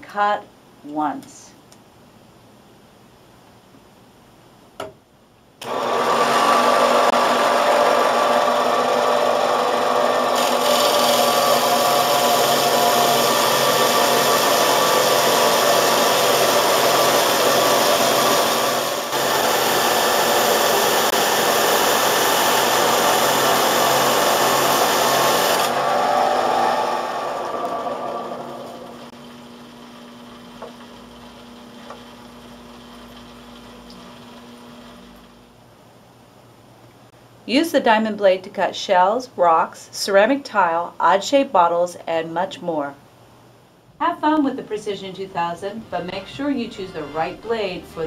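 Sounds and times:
band saw cutting glass: 6.2 - 29.7.

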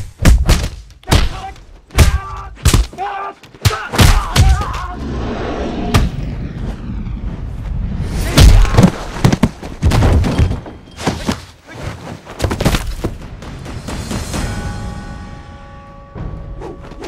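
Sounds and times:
punches and body blows landing: 0.0 - 4.9, 8.2 - 13.2
film music: 13.1 - 17.0.

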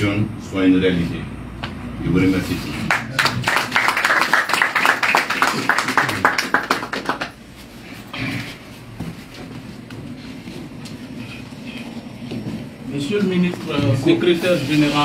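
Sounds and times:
audience applauding: 2.9 - 7.4.

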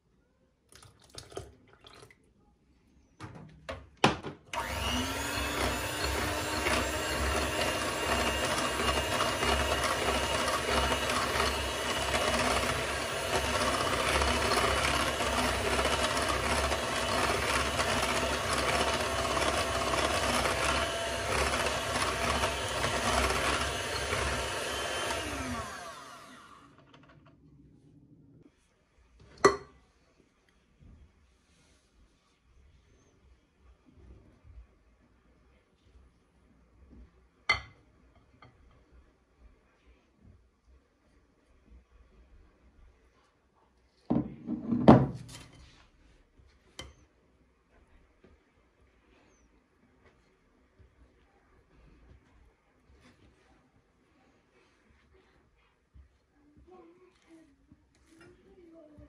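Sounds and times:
small electric motor whining: 4.6 - 26.8.

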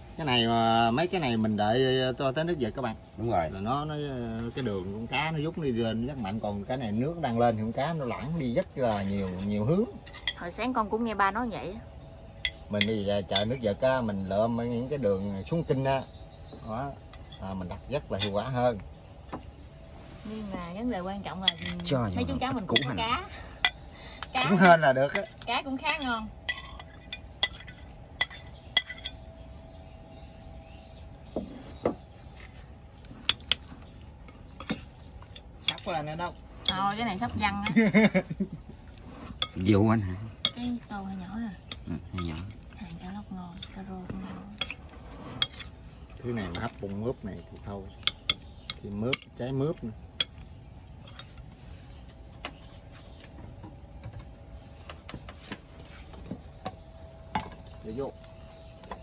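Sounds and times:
utensils clinking against dishes: 8.8 - 10.4, 21.4 - 29.2, 33.2 - 35.9, 39.3 - 40.9, 41.6 - 42.8, 44.6 - 49.4, 50.1 - 51.5.

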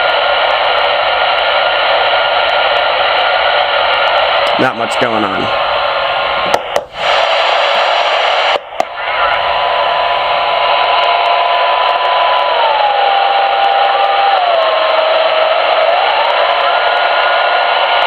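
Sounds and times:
radio static hiss: 0.0 - 18.0
radio whistle: 5.5 - 18.0.

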